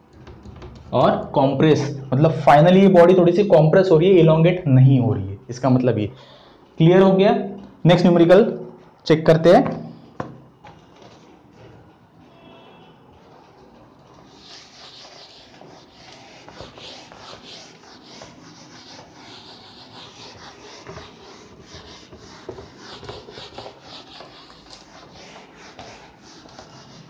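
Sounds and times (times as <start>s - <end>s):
duster swishing on whiteboard: 14.1s - 27.0s.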